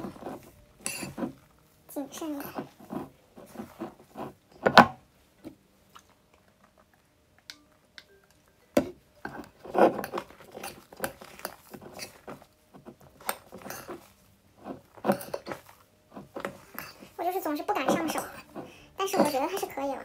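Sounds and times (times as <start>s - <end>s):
slime squelching in a bowl: 0.0s - 4.8s, 9.2s - 19.8s.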